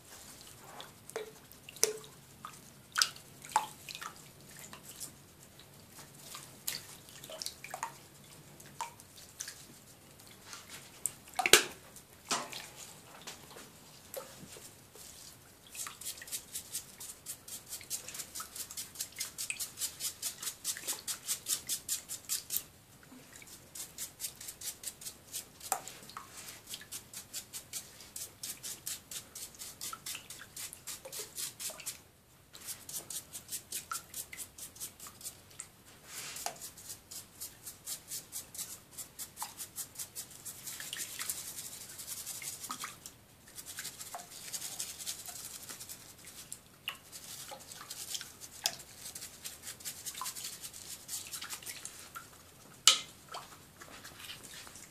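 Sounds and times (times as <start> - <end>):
toothbrush scrubbing spines: 43.5 - 46.5.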